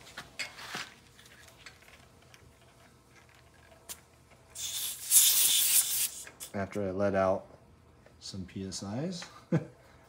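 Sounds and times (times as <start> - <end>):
air hissing from tyre valve: 4.6 - 6.5.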